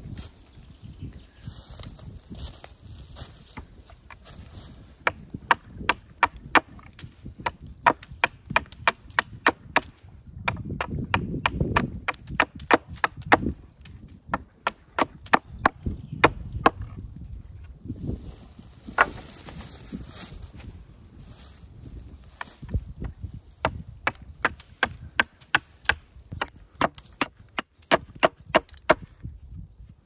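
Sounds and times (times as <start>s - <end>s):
hatchet chopping wood: 5.0s - 17.0s, 19.0s - 19.2s, 22.6s - 29.2s.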